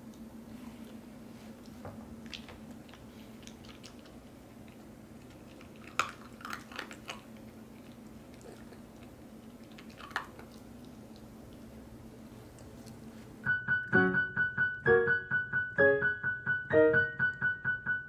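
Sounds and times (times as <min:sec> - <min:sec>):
puppy crunching dry dog food: 0:02.2 - 0:13.3.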